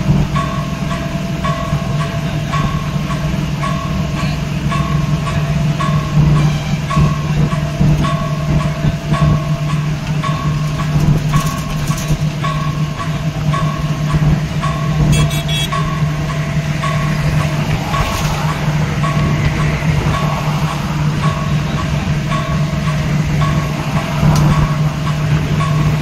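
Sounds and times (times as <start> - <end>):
vehicle engine and road drone: 0.0 - 26.0
short electronic beeps: 15.1 - 15.8.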